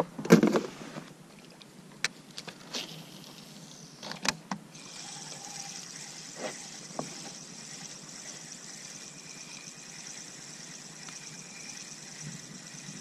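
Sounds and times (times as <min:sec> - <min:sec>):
fishing reel whirring: 0:04.7 - 0:13.0.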